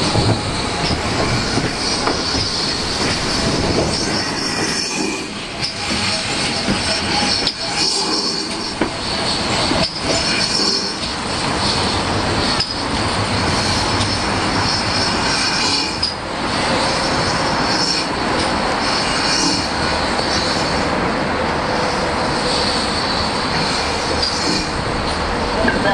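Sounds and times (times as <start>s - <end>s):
steam locomotive hissing: 0.0s - 25.9s
train clanks: 0.0s - 25.9s.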